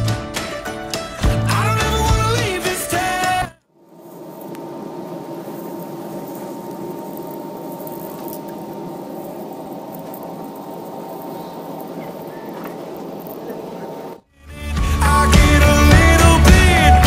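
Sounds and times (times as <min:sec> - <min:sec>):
music: 0:00.0 - 0:03.6, 0:14.4 - 0:17.0
train carriage running hum: 0:04.2 - 0:14.2.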